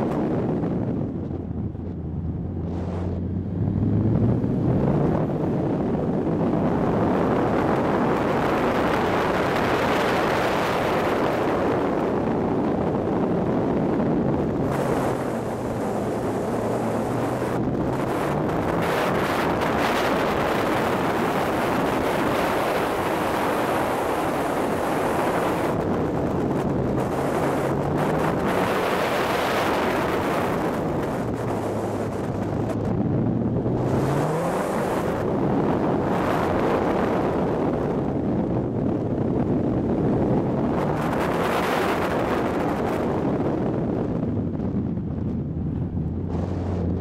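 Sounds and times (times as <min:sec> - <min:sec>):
wind noise on microphone: 0:00.0 - 0:47.0
turbocharged car engine pulling hard: 0:14.2 - 0:37.8.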